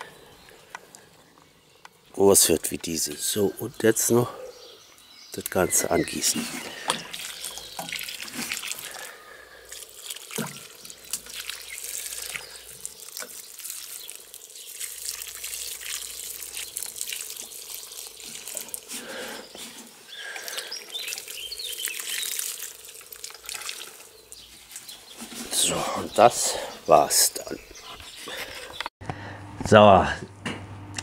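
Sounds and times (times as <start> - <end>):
water pouring onto soil: 5.4 - 26.4.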